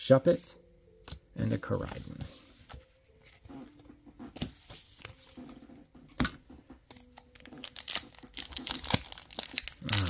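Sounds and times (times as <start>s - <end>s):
plastic packaging crinkling and tearing: 6.9s - 10.0s.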